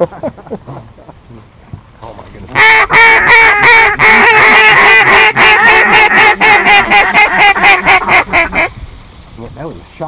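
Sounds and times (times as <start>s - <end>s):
duck call quacks: 2.6s - 8.7s.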